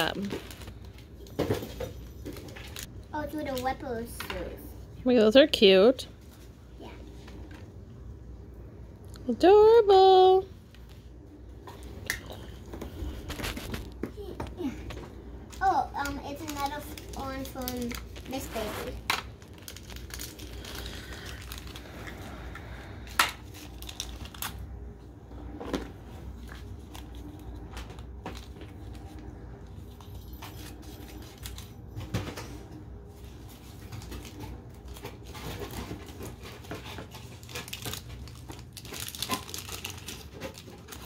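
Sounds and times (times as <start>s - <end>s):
wrapping rustling: 0.0s - 2.9s, 15.6s - 24.7s, 33.2s - 41.0s.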